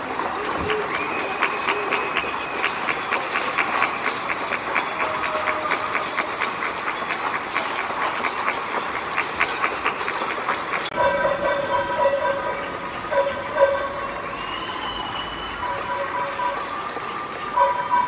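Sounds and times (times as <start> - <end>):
crowd clapping: 0.0 - 11.0.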